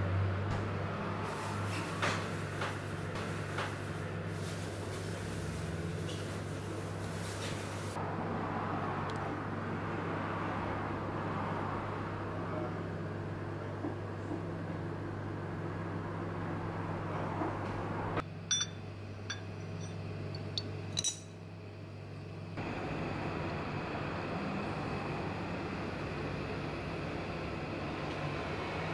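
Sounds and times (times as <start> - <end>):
crockery clinking: 18.5 - 21.4.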